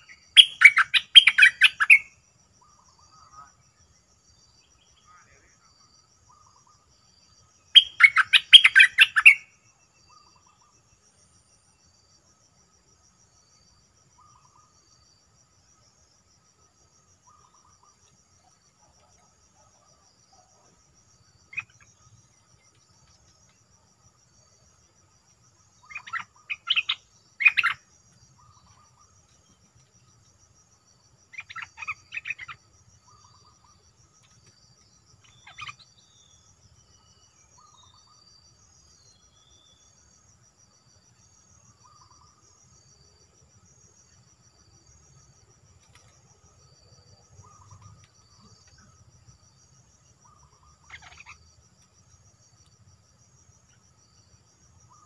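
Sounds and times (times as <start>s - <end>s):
bird calling: 0.0s - 2.1s, 7.8s - 9.5s, 25.8s - 27.8s
cricket trill: 0.0s - 55.0s.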